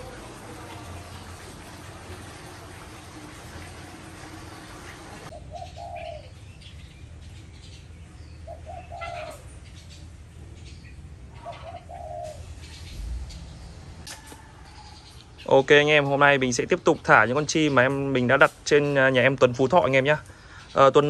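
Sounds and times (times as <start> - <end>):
dove cooing: 0.0 - 6.4, 8.4 - 9.6, 11.4 - 13.1
small birds chirping: 3.6 - 21.0.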